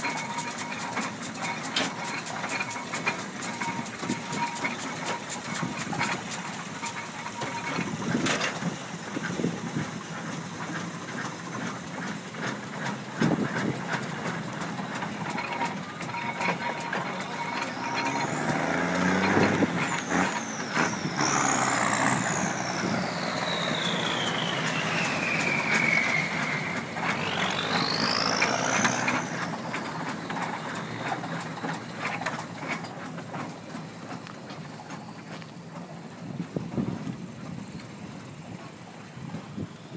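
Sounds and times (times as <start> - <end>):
metal clanks: 0.0 - 8.7, 10.7 - 35.1
steam traction engine running: 0.0 - 39.9
high whine sweeping: 15.7 - 31.4.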